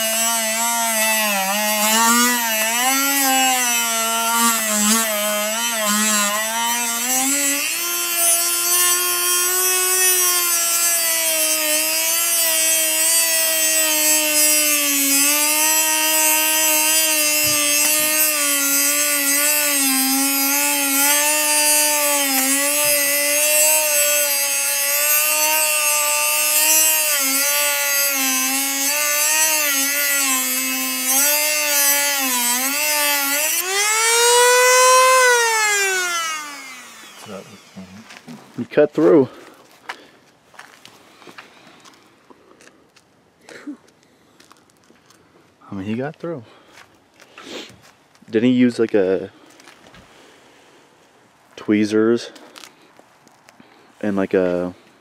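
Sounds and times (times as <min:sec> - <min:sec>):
rotary tool grinding metal: 0:00.0 - 0:38.5.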